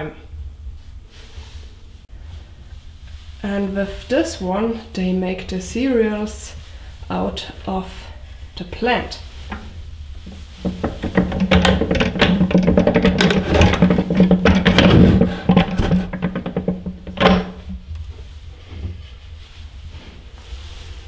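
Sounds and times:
fast mechanical rattle: 10.3 - 17.8.

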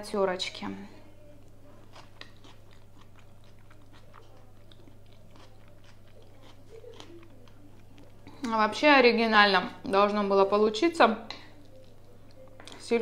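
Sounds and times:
steady low hum: 0.0 - 13.0
person chewing food: 1.3 - 8.6, 11.3 - 12.8.

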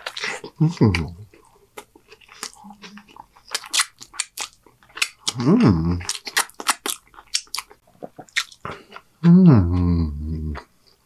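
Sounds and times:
person chewing crunchy food: 0.0 - 11.0
person humming: 0.6 - 1.3, 5.4 - 6.0, 9.2 - 10.6.

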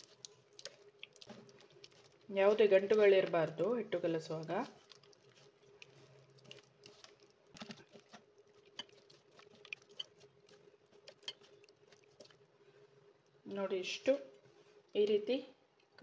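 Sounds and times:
fingers squelching batter: 0.0 - 12.5.

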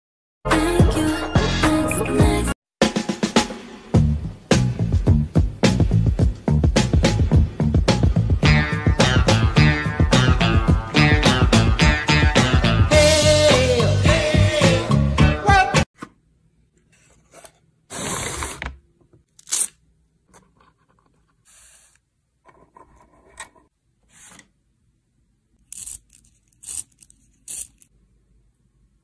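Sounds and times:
music: 0.5 - 15.9
pencil grinding in sharpener: 25.7 - 27.9.

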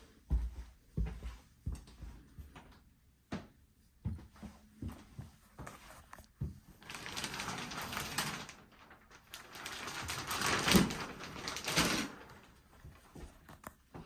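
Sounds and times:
fabric rustling: 5.4 - 13.7.

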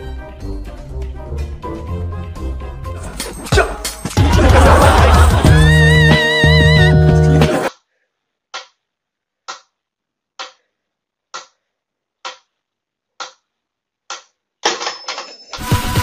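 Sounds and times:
mechanical metronome ticking: 13.2 - 13.4.

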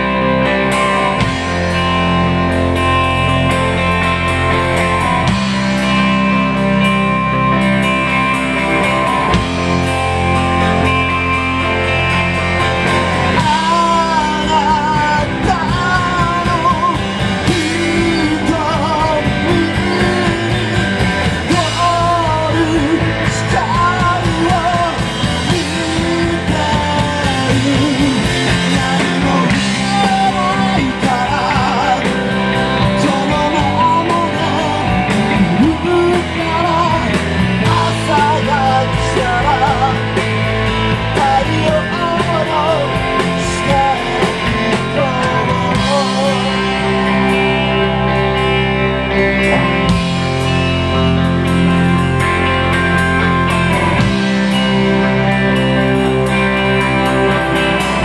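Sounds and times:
drum kit: 0.0 - 58.0
electric bass: 0.0 - 58.0
electric guitar: 0.0 - 58.0
rock band playing loud: 0.0 - 58.0
person singing: 12.8 - 48.2.

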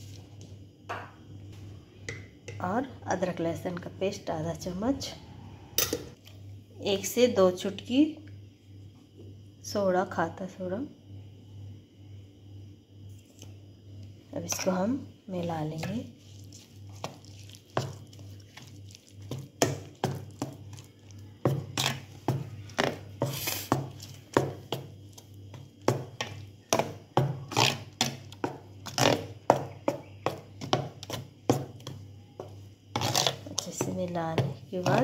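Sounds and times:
metal spoon stirring in a bowl: 15.5 - 35.0.

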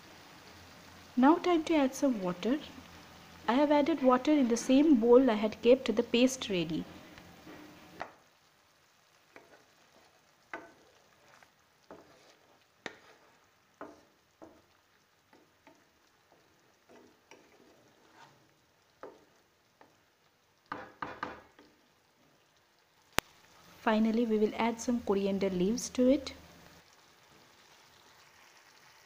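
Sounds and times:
faint sizzling: 0.0 - 29.0
spatula scraping a pan: 9.2 - 14.7, 15.3 - 20.0.

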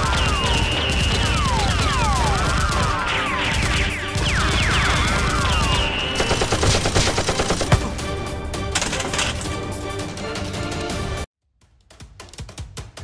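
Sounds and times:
machine-gun fire: 0.0 - 8.0
ray-gun zaps: 0.0 - 8.0.

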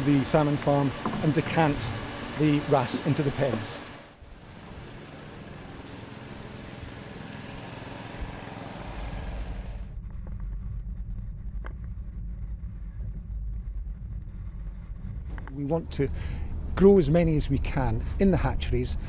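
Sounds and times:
steady hiss: 0.0 - 9.9.

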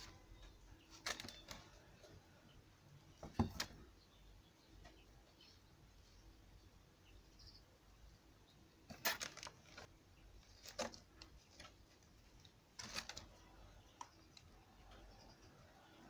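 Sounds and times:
paper flyers crinkling and rustling: 12.8 - 13.5.

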